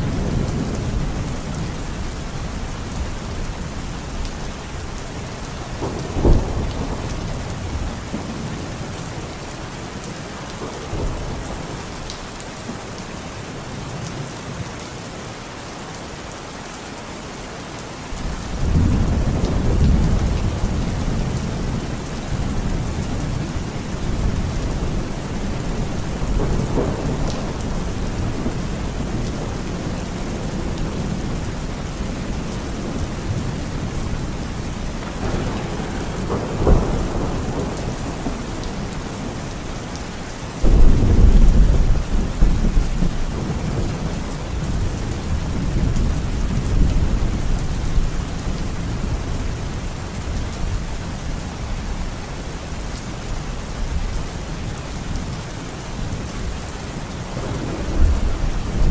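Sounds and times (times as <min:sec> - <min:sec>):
heavy rain pouring: 0:00.0 - 0:58.9
low thunder rumble: 0:18.5 - 0:39.6, 0:40.6 - 0:48.1, 0:57.3 - 0:58.9
thunder crack: 0:35.0 - 0:38.4.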